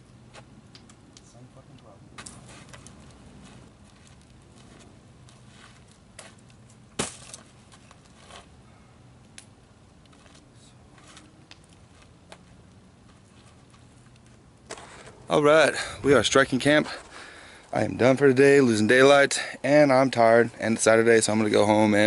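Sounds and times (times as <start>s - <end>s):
faint background hum: 0.0s - 22.0s
footsteps: 2.2s - 8.5s, 10.0s - 18.0s.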